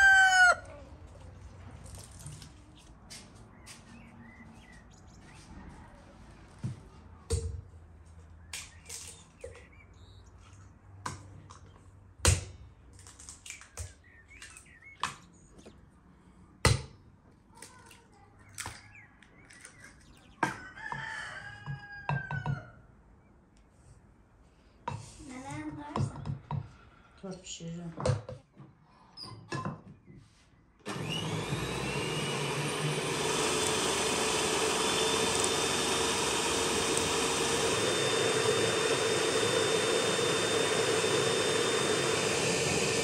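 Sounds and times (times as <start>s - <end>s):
rooster crowing: 0.0s - 0.8s, 20.4s - 22.8s
chickens calling: 0.0s - 1.2s, 31.3s - 43.0s.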